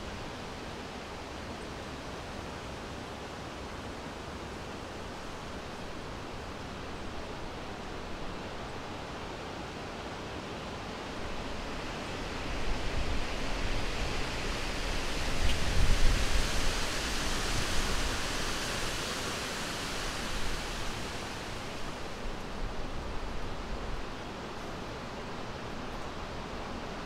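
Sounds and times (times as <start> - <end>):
low wind rumble: 11.1 - 24.3
wind rushing: 12.6 - 22.5.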